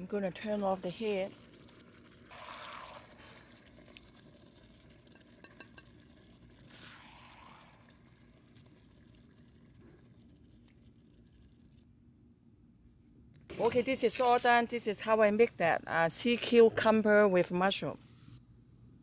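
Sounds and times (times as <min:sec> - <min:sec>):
faint liquid sounds of sauce: 0:01.0 - 0:12.2.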